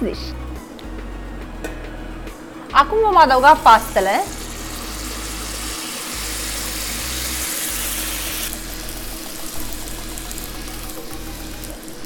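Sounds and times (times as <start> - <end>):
spaghetti sizzling in a pan: 3.3 - 12.0.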